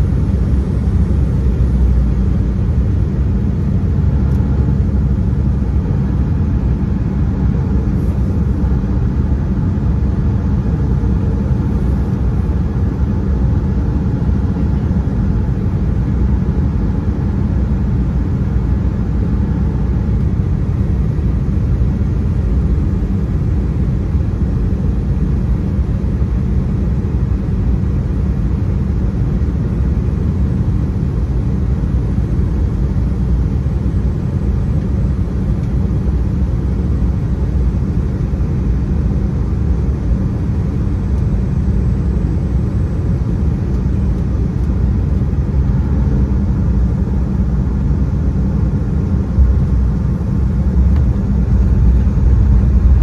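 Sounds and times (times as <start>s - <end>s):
airliner engine rumble: 0.0s - 53.0s.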